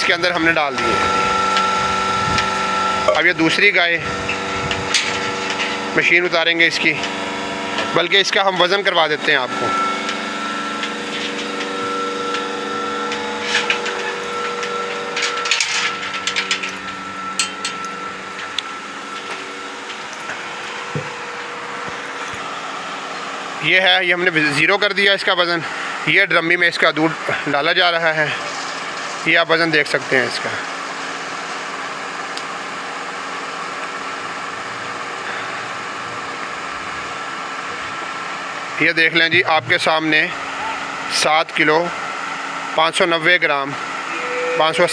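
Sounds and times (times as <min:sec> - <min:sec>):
vacuum pump motor humming: 0:00.0 - 0:26.2, 0:30.6 - 0:44.9.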